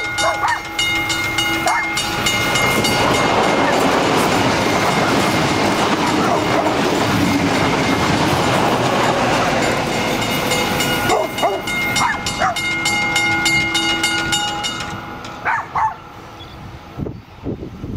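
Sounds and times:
level crossing bell ringing: 0.0 - 16.4
train wheels on rails: 0.0 - 17.9
dog barking: 0.2 - 0.6, 1.7 - 1.9, 6.2 - 6.8, 11.1 - 12.6, 15.4 - 16.0.

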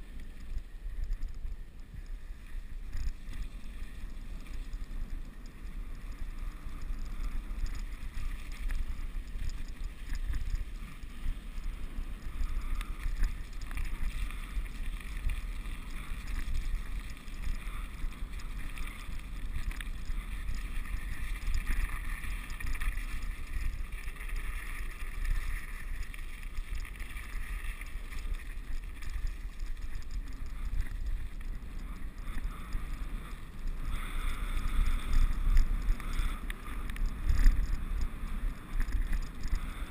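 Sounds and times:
bike tyres hissing on slush: 0.0 - 39.9.

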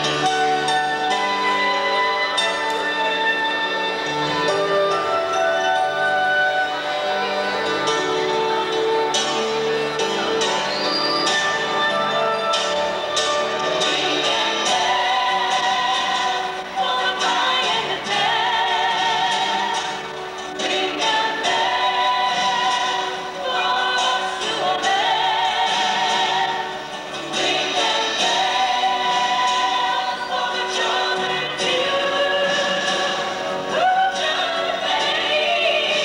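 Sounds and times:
woman singing with vibrato: 13.8 - 36.0.

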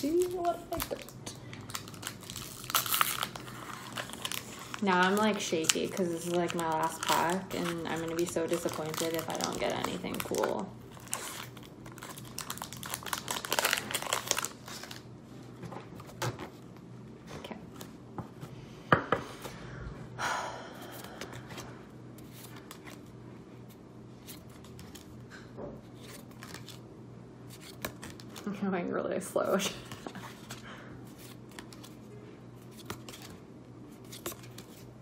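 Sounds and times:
foil wrapper crinkling and tearing: 0.0 - 15.1
trading cards being handled: 29.9 - 34.9.

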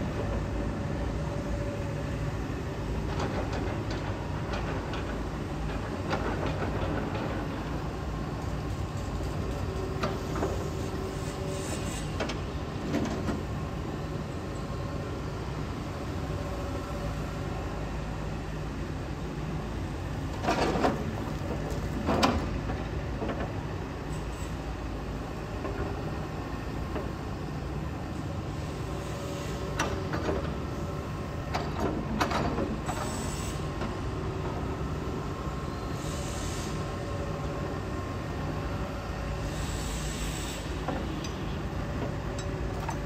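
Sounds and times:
excavator diesel engine running: 0.0 - 11.6.

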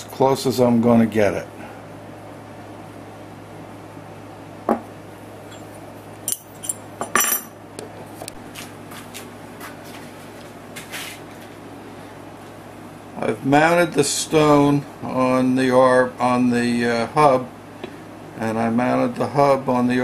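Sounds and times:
steady low hum: 0.0 - 20.0
knock on wooden bench: 4.7 - 4.9
metal tools clinking: 5.5 - 5.7, 6.3 - 7.6.

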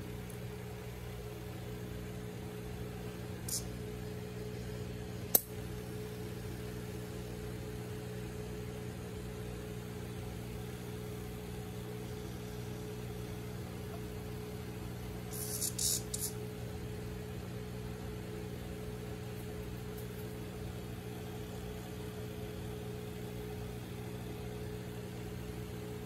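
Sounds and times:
aquarium equipment humming: 0.0 - 26.0
sharp click: 5.3 - 5.6.

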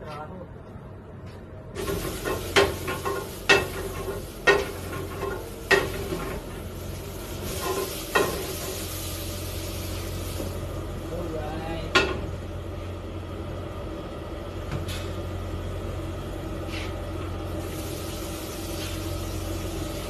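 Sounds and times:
food sizzling in a pan: 1.8 - 10.9, 17.5 - 20.0.

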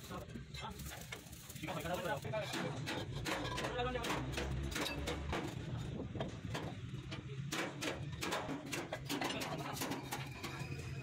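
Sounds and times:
metallic knocks and clanks: 2.5 - 10.6.

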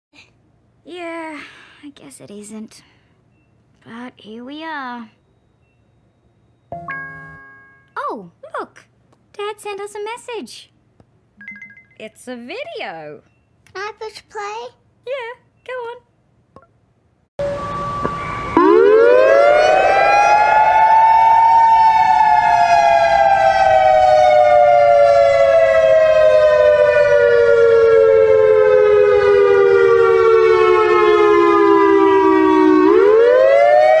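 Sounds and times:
emergency alert siren: 17.4 - 34.0.

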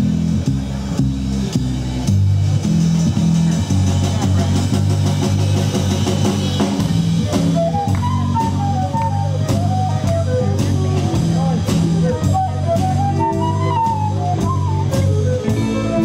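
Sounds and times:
rockabilly band music: 0.0 - 16.0
lead melody line: 6.0 - 16.0.

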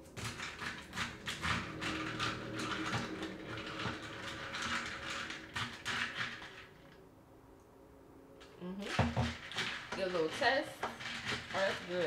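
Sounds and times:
spoon stirring in a cup: 0.2 - 6.8, 8.8 - 12.0.

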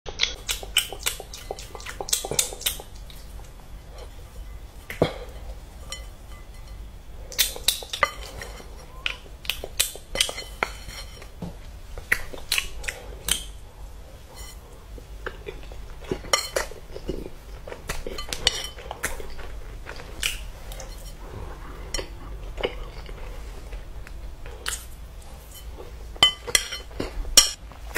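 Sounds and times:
glass bowl clinking: 3.9 - 6.9.

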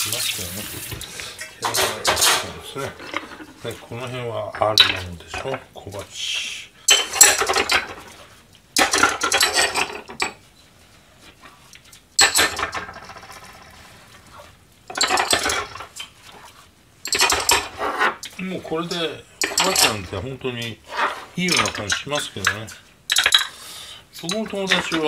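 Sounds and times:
ceramic bowls clinking: 1.3 - 3.7, 17.0 - 20.2, 24.2 - 25.0.

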